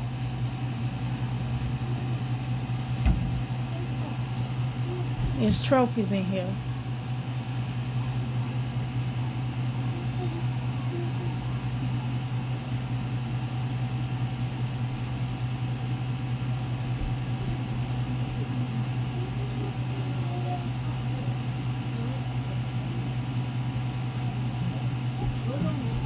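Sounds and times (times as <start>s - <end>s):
steady low hum: 0.0s - 26.0s
faint distant voices: 17.4s - 26.0s.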